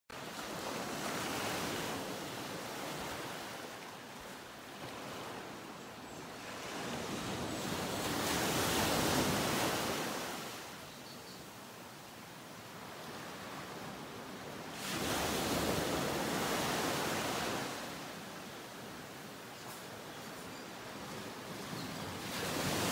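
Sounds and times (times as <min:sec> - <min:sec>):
ocean waves washing in: 0:12.6 - 0:19.7, 0:21.1 - 0:22.9.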